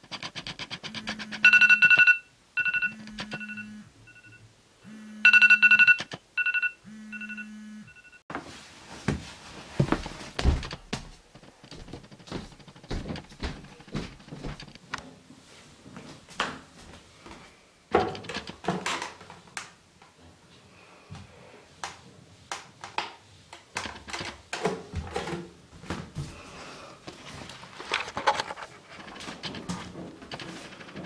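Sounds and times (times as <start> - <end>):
phone alarm ringing: 0.9 - 8.2
low vibration buzz: 4.8 - 5.3
bare footsteps on wooden floor: 9.0 - 14.6.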